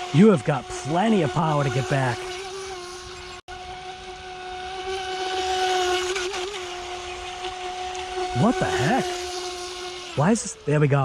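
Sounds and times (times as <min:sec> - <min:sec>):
electric motor whine: 0:00.0 - 0:11.0
boat spray hiss: 0:07.8 - 0:10.8.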